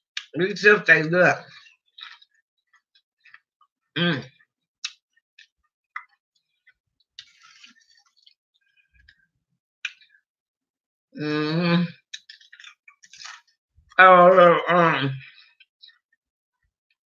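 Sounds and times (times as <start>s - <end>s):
chewing potato chips: 12.0s - 13.6s.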